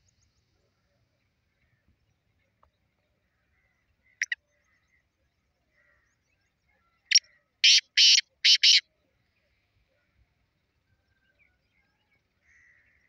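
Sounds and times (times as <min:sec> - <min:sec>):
bird calling harsh notes: 0:07.6 - 0:08.8.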